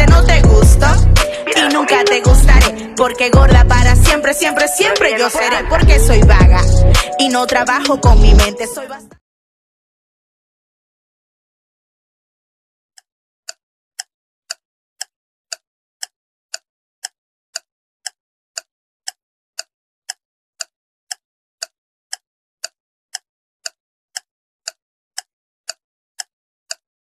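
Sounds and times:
clock-like timer ticks: 0.0s - 5.1s, 6.2s - 8.6s, 13.0s - 26.8s.

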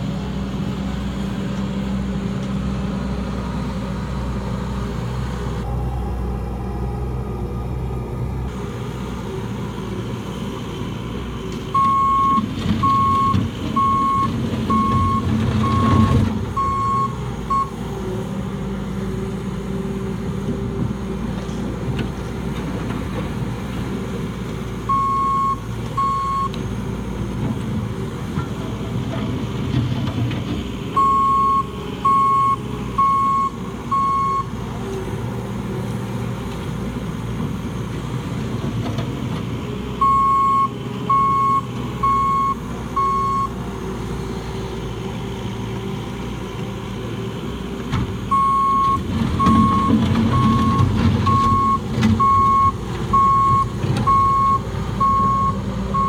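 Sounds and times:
loader engine running: 0.0s - 56.0s
back-up alarm beeping: 11.8s - 17.7s, 48.3s - 56.0s.

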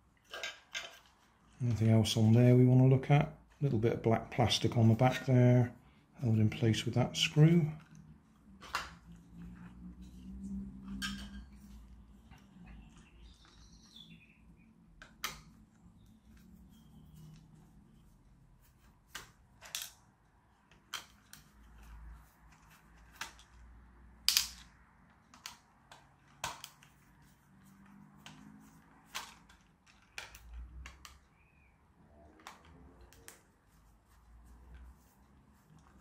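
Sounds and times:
plastic clicks and taps: 25.3s - 27.0s.

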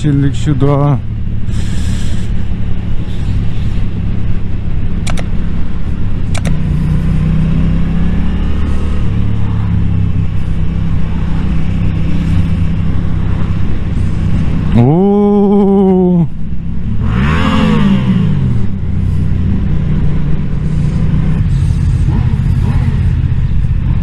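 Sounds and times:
motorcycle engine running: 0.0s - 24.0s
short sharp clicks: 5.0s - 5.3s, 6.3s - 6.6s.

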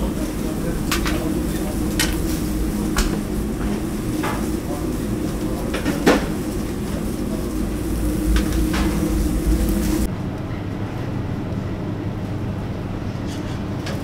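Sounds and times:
low kitchen hum: 0.0s - 14.0s.

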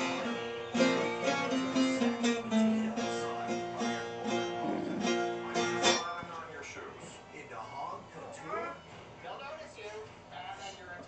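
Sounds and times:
long-necked lute melody: 0.0s - 6.0s.

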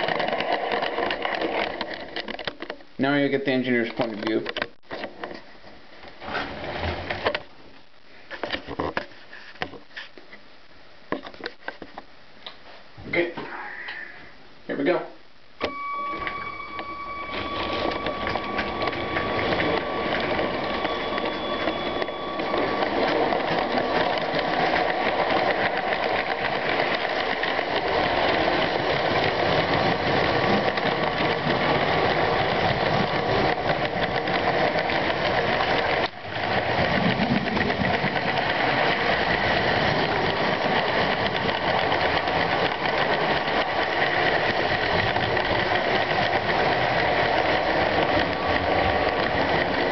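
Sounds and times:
wheels rattling over plastic track: 0.0s - 5.3s, 16.3s - 49.9s
toy train motor whirring: 15.7s - 49.9s.

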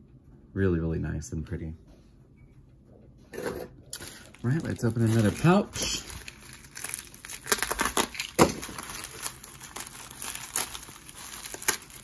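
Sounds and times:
plastic wrapping crinkling: 3.9s - 12.0s.

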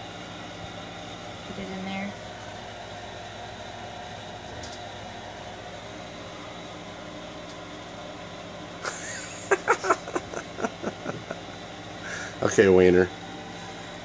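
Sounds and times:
room noise hum: 0.0s - 14.0s
short laughs: 8.8s - 11.4s.

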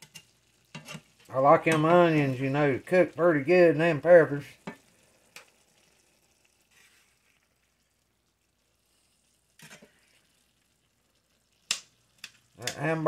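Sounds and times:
metal spatula scraping pan: 0.0s - 1.9s, 9.6s - 10.2s
food sizzling in a skillet: 0.0s - 13.0s.

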